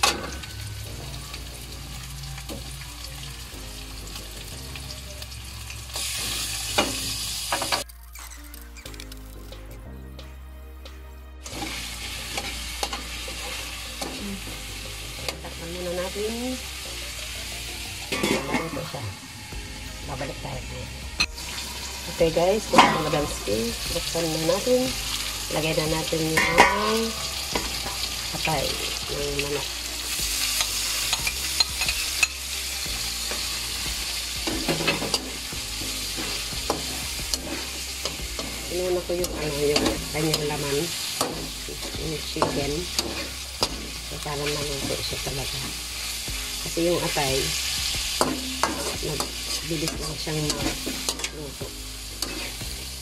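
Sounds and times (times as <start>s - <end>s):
chicken sizzling in a wok: 0.0s - 7.9s, 11.4s - 53.0s
metal lid clattering: 18.2s - 18.9s
fork scraping on pan: 41.2s - 44.0s, 52.2s - 52.6s.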